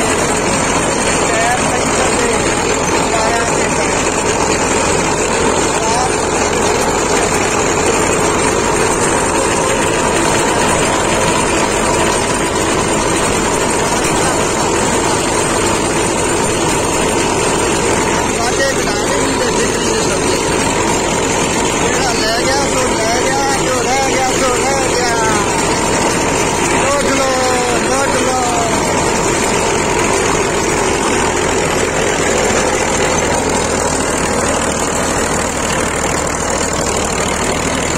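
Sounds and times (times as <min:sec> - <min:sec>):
rotary tiller working soil: 0:00.0 - 0:37.9
tractor diesel engine running: 0:00.0 - 0:37.9.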